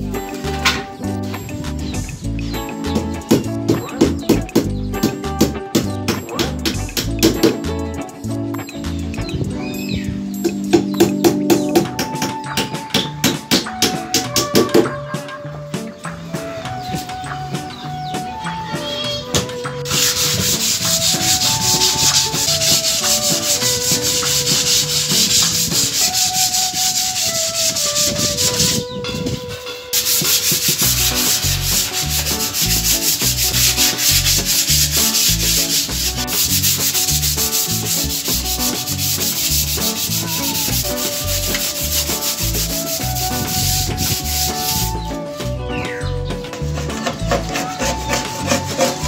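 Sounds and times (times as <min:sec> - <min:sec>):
sandpaper rubbing on wood: 0:19.8 - 0:28.9, 0:29.9 - 0:45.1, 0:46.6 - 0:49.0.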